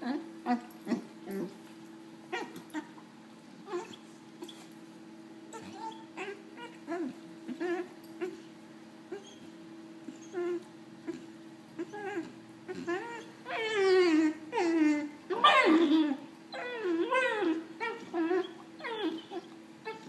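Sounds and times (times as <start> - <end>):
puppy whining: 0.0 - 1.6, 2.3 - 3.0, 3.6 - 4.8, 5.5 - 20.0.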